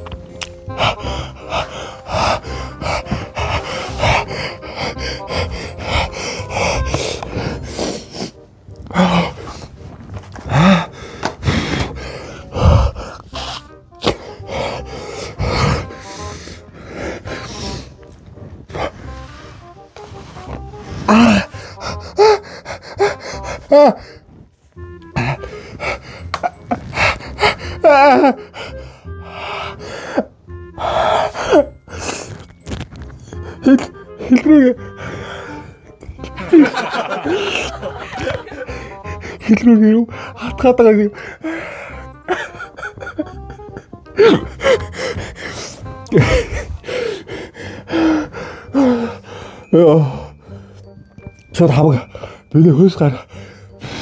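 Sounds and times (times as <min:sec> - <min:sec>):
background music: 0:00.0 - 0:54.0
man exhaling and gasping: 0:00.6 - 0:19.2, 0:20.4 - 0:24.4, 0:40.1 - 0:50.9
man's wavering cry: 0:27.8 - 0:28.4.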